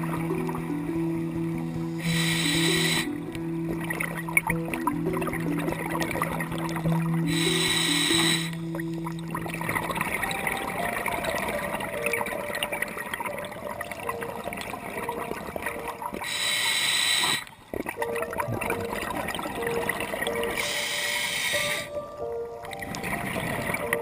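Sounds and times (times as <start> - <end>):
crackle of fine clicks: 17.4 - 24.0.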